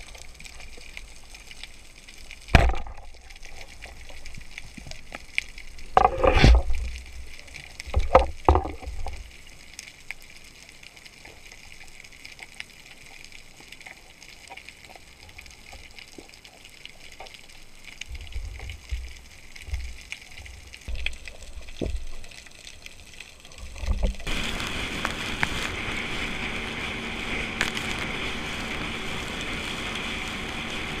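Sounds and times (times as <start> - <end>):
water rushing along boat hull: 23.9 - 31.0
motorboat engine running: 24.3 - 31.0.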